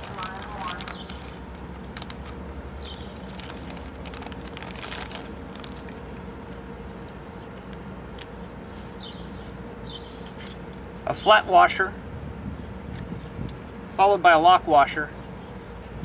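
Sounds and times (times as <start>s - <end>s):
plastic bag rustling: 0.0s - 6.6s
metal washers and nuts clinking: 0.0s - 8.4s, 10.1s - 10.8s
steady low hum: 0.0s - 16.0s.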